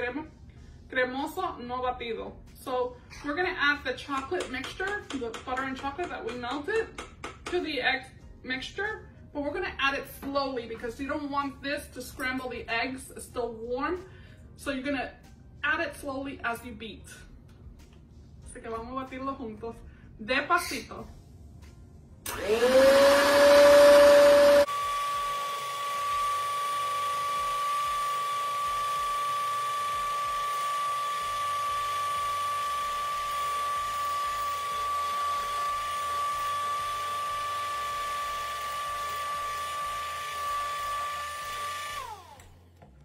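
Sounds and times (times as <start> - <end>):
electric mixer motor whine: 22.3 - 43.0.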